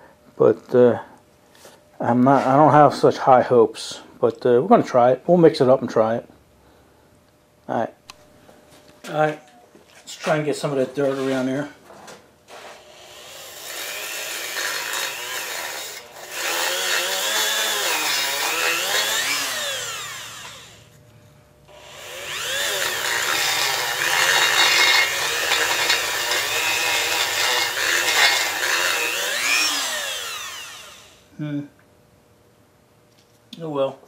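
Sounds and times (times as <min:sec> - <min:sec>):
rotary tool wire brush whine: 0:12.5 - 0:21.0, 0:21.7 - 0:31.3.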